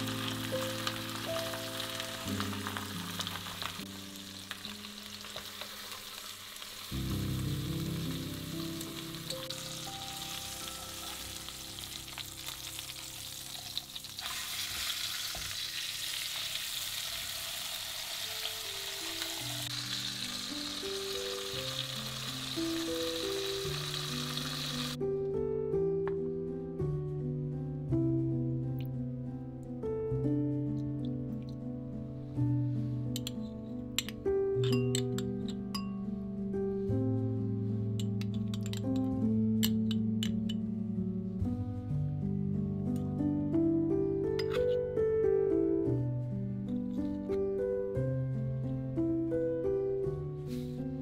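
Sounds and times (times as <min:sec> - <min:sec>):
chicken sizzling in frying pan: 0:00.0 - 0:25.0
soft music: 0:00.0 - 0:51.0.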